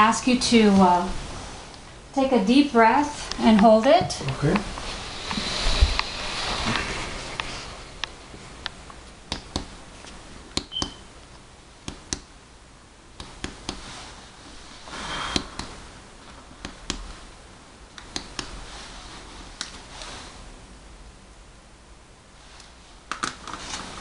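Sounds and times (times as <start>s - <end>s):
fingers tapping on chest: 9.3s - 9.8s.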